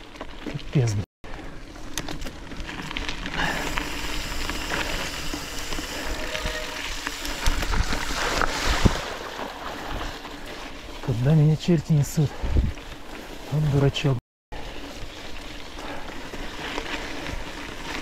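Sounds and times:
tyre and wind rush: 3.2s - 13.7s.

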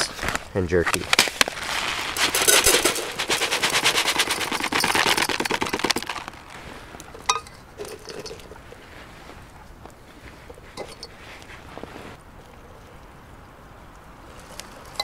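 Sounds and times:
rice rattling into metal kettle: 1.6s - 6.7s, 7.8s - 8.6s.

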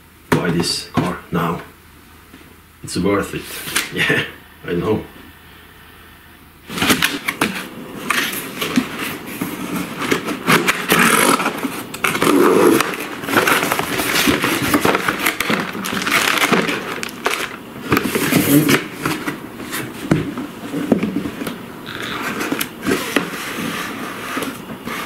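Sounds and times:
cardboard box being unpacked: 6.7s - 25.0s.

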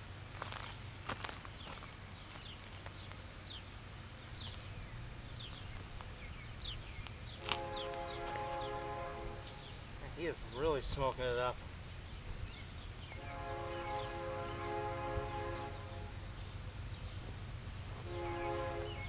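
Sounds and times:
low steady rumble: 0.0s - 19.0s
distant locomotive air horn: 7.3s - 9.9s, 13.0s - 16.4s, 17.8s - 19.0s.

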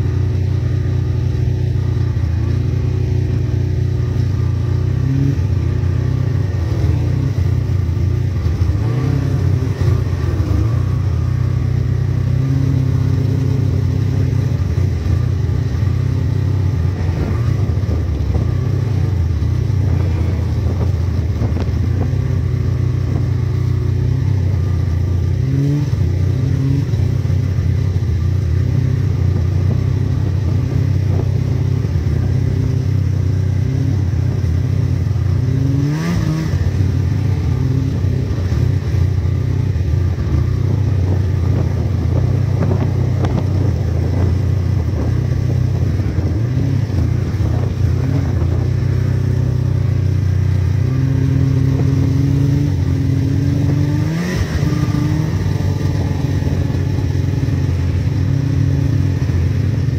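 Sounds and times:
snowmobile engines running: 0.0s - 59.9s.

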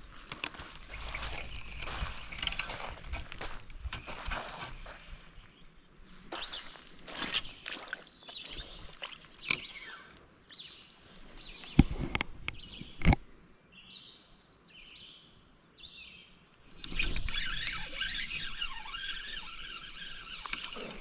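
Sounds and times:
fishing reel whirring: 0.7s - 5.3s, 16.6s - 21.0s
fishing reel clicks and knocks: 16.5s - 20.9s.

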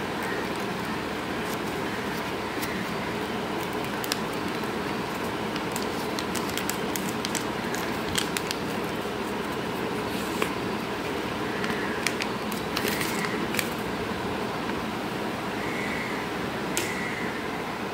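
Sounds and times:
steady background hum: 0.0s - 17.9s
paper crinkling and tapping: 0.2s - 13.8s.

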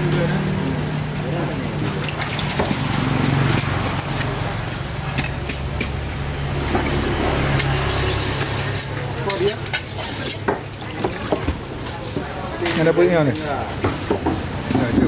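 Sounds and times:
water splashing in a basin: 0.0s - 15.0s.

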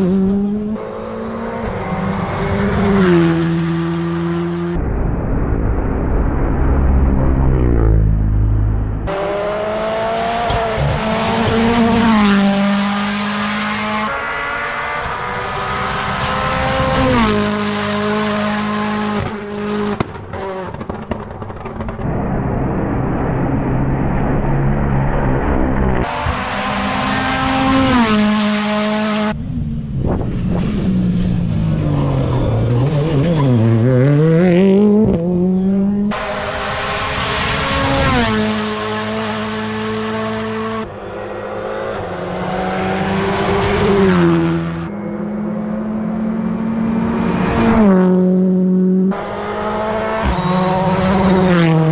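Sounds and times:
rally car engines revving: 0.0s - 5.0s, 5.6s - 51.9s
car braking: 30.0s - 34.2s, 49.0s - 51.9s.

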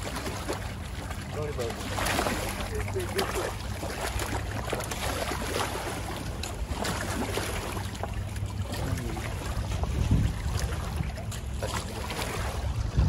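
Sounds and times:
water lapping against rocks: 0.0s - 13.0s
wind rumble on microphone: 8.7s - 13.0s.

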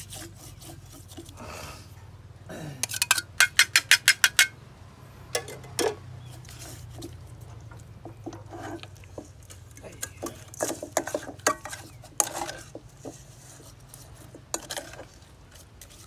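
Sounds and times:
utensil clinking against dish: 2.8s - 4.5s, 8.1s - 13.2s.

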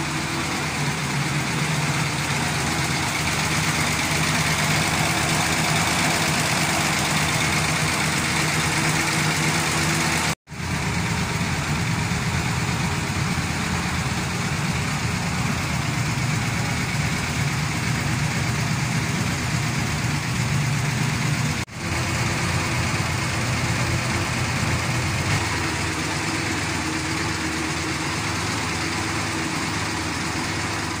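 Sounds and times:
truck engine idling: 0.0s - 31.0s.

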